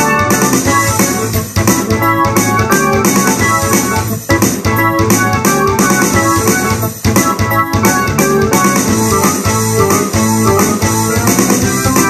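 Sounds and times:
electric piano keyboard chords: 0.0s - 12.0s.

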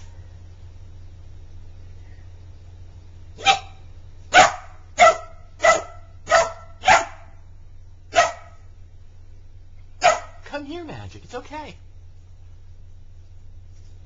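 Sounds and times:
puppy barking: 3.4s - 7.4s, 8.1s - 8.6s, 10.0s - 10.4s.

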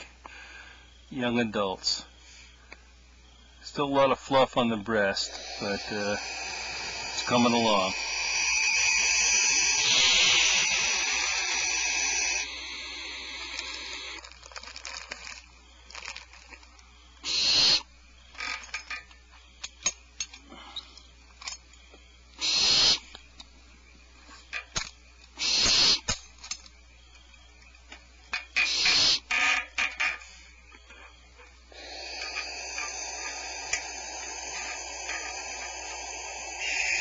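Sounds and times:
owl nestlings hissing: 3.6s - 19.0s, 22.4s - 27.7s, 28.3s - 37.0s
sharp clicks: 5.3s - 12.5s.

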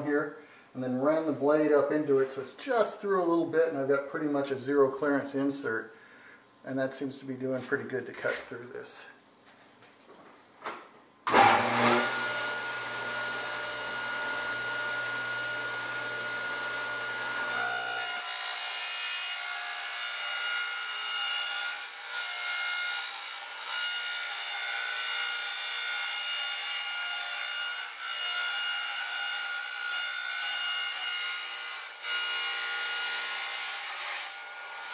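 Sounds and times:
table saw whining: 11.3s - 34.9s.

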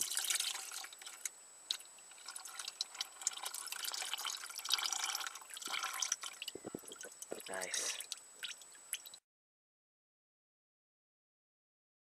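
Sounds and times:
oil splashing into drain pan: 0.0s - 9.2s.

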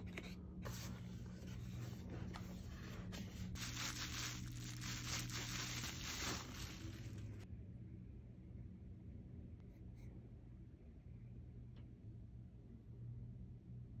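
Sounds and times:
bubble wrap crinkling: 2.4s - 7.4s.

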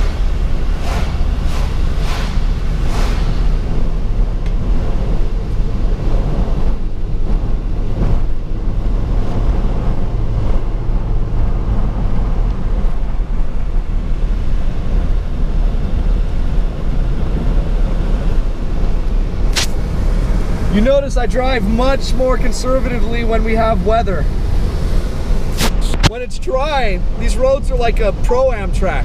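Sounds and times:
engine and road rumble: 0.0s - 29.0s
sharp click: 19.5s - 19.8s.

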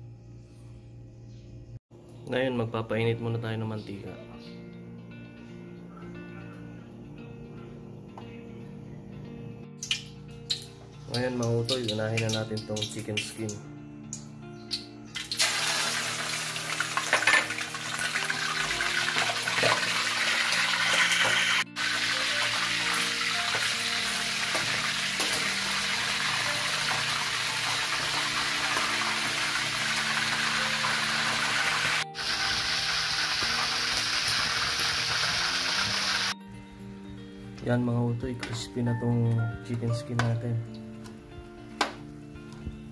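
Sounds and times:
skin sizzling in hot oil: 15.2s - 36.4s.

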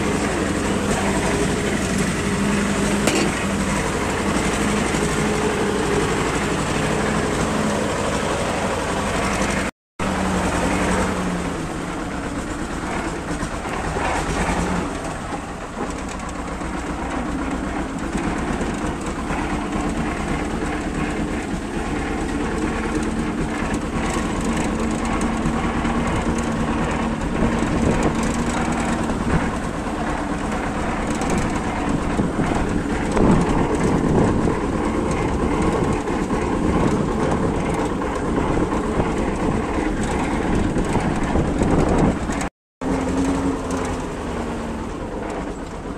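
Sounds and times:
tractor diesel engine running: 0.0s - 45.9s
metal frame rattling and clattering: 12.8s - 44.0s.

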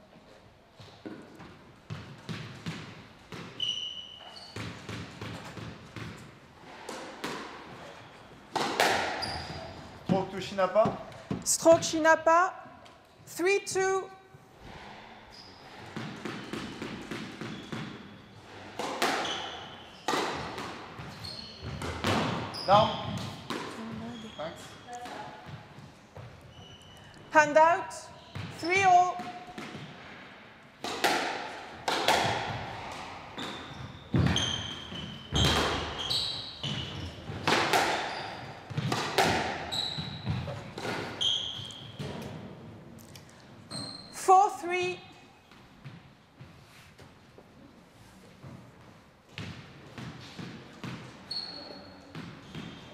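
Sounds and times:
squash ball bouncing on floor: 0.9s - 3.6s, 4.5s - 6.3s, 6.9s - 7.8s, 8.5s - 11.9s, 15.8s - 18.0s, 18.8s - 19.5s, 20.1s - 24.2s, 28.3s - 30.1s, 30.8s - 42.3s, 48.5s - 51.2s, 52.0s - 52.9s
echoing racket hitting ball: 1.0s - 3.6s, 4.4s - 11.9s, 15.6s - 24.0s, 28.3s - 42.6s.

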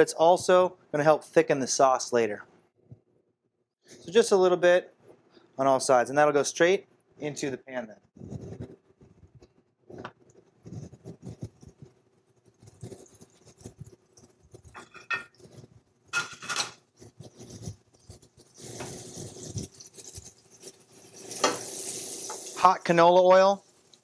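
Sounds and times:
beef sizzling in oil: 16.2s - 24.0s.

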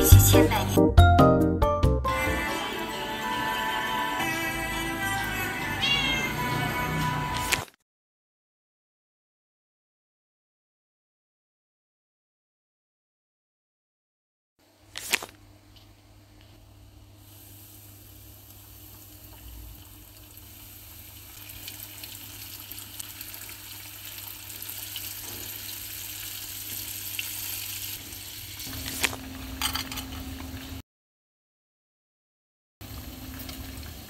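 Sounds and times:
chicken deep-frying in oil: 17.2s - 30.8s, 32.8s - 34.0s.

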